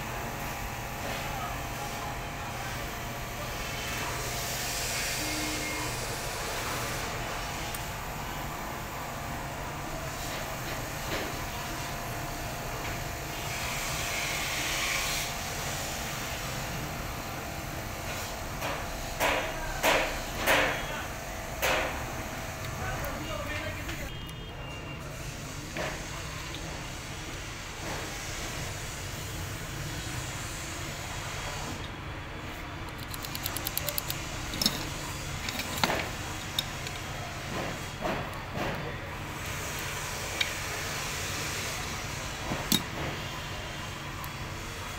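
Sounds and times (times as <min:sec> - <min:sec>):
steady background hum: 0:00.0 - 0:44.9
metal parts clicking and scraping: 0:32.8 - 0:37.2, 0:42.6 - 0:42.9.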